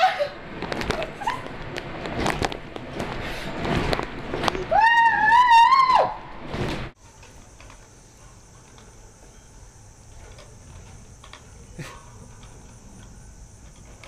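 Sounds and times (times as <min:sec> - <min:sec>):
insect chirring: 0:07.0 - 0:14.0.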